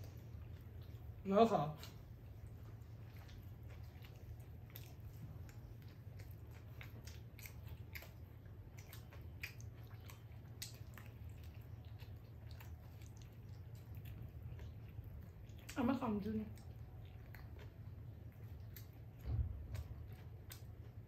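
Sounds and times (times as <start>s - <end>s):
people chewing pizza: 0.0s - 21.0s.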